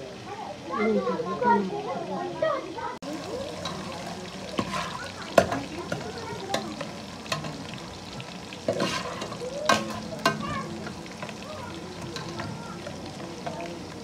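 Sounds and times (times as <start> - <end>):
onions sizzling in hot oil: 0.0 - 14.0
metal spoon scraping pot: 8.7 - 10.4.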